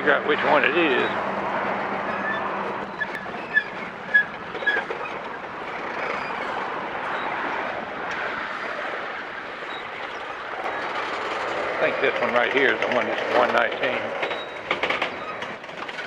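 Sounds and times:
freight train wheels rumbling: 0:00.0 - 0:16.0
short high squeaks: 0:02.1 - 0:07.5, 0:14.2 - 0:15.6.

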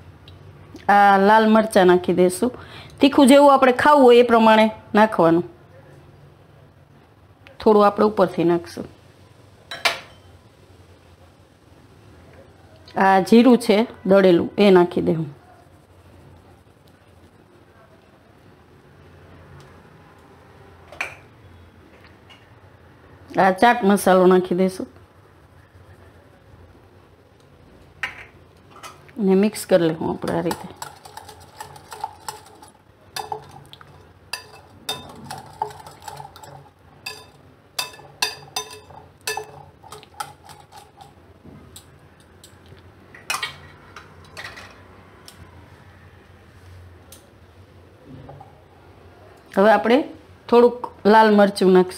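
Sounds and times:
faint low hum: 0:04.7 - 0:51.9
spoon clinking in glass bowl: 0:30.3 - 0:41.0.

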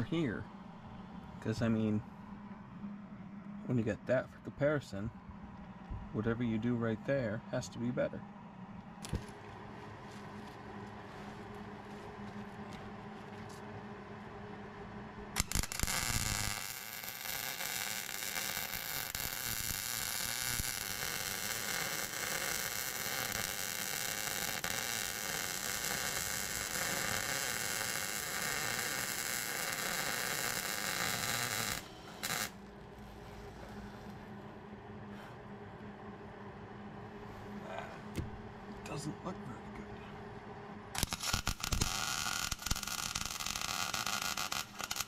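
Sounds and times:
welding arc pops: 0:15.4 - 0:32.6, 0:41.0 - 0:45.0
welding arc hissing: 0:15.4 - 0:34.1, 0:41.0 - 0:45.0.

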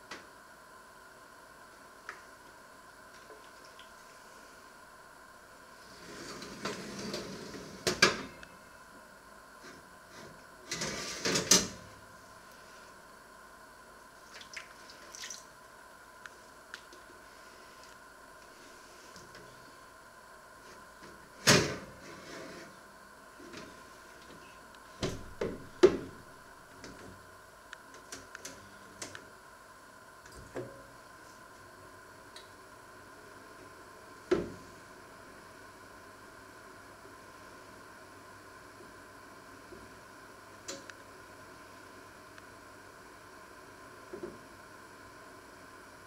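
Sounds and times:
oven rack sliding on runners: 0:05.8 - 0:08.3, 0:10.1 - 0:11.8, 0:21.6 - 0:22.7.

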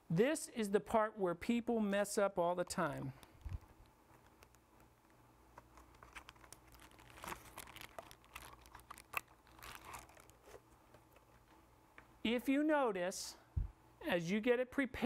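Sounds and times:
low room hum: 0:00.0 - 0:15.0
plastic item crinkling: 0:02.6 - 0:11.6.

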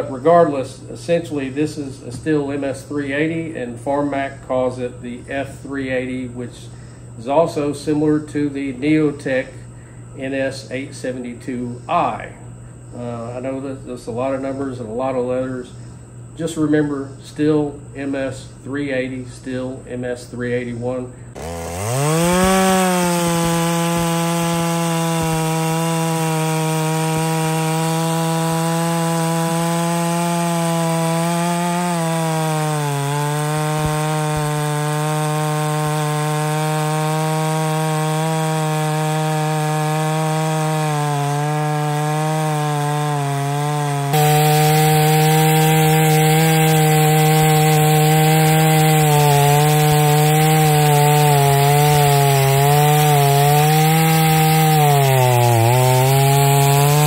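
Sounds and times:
chainsaw cutting a log: 0:20.6 - 0:57.0.

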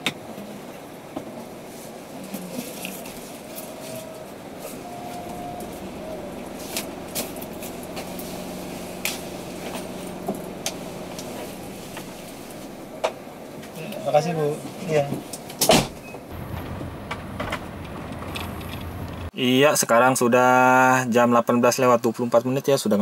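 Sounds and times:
low steady hum: 0:00.3 - 0:19.3
car cabin rumble: 0:00.8 - 0:19.3.

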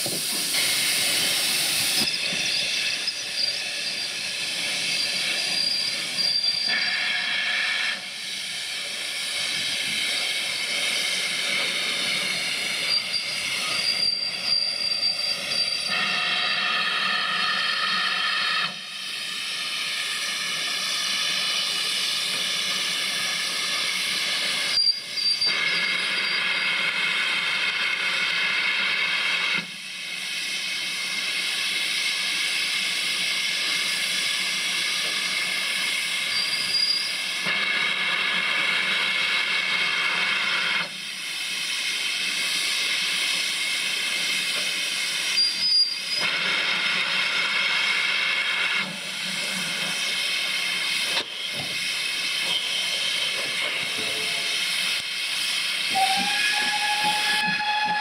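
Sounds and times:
steam locomotive hissing: 0:00.0 - 0:58.0
thin high-pitched squeals: 0:02.0 - 0:07.2.

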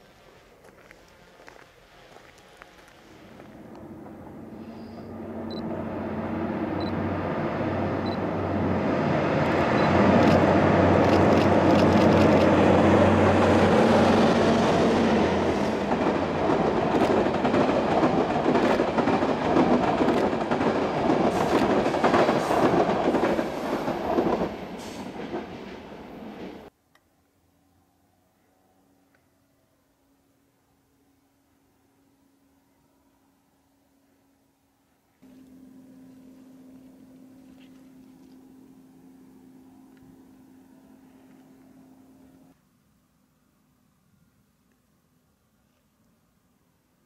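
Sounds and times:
train running drone: 0:00.0 - 0:26.7, 0:35.2 - 0:42.6.

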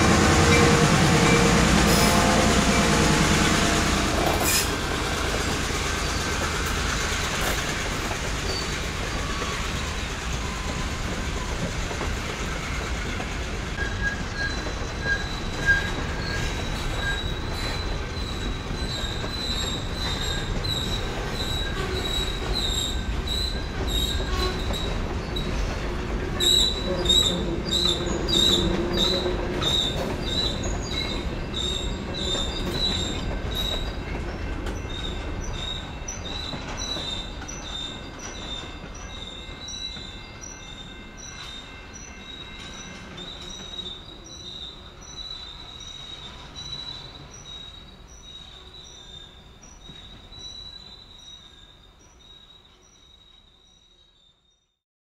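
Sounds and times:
high wheel squeal: 0:00.0 - 0:25.8, 0:26.4 - 0:51.7
freight train wheels rumbling: 0:00.0 - 0:52.8
wheels clicking over rail joints: 0:04.2 - 0:41.6.

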